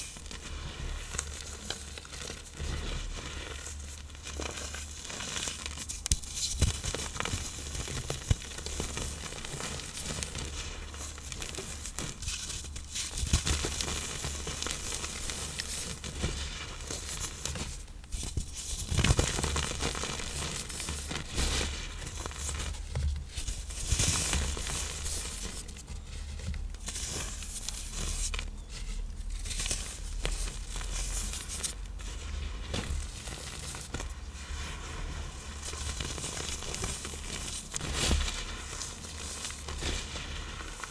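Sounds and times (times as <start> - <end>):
powder blocks crushed and crumbling: 18.4 - 40.9.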